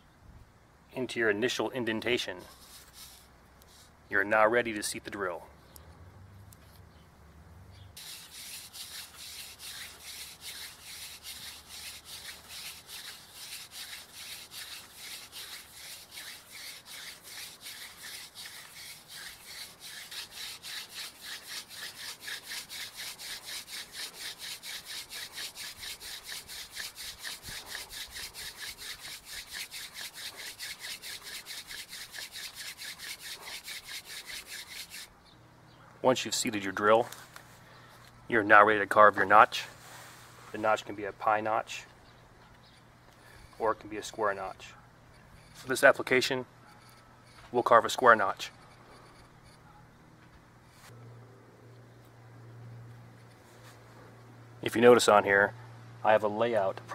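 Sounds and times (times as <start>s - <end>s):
wooden hand drill rasping: 8.0s - 35.1s.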